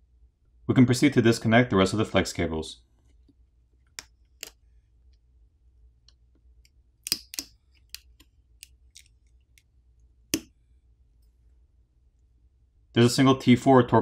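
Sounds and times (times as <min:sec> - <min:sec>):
small sharp connector clicks: 0:06.1 - 0:09.7.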